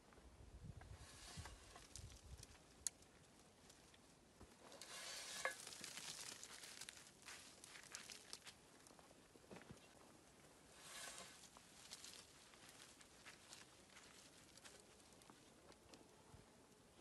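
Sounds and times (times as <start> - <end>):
branches and moss rustling: 1.0 - 9.2, 10.7 - 16.0.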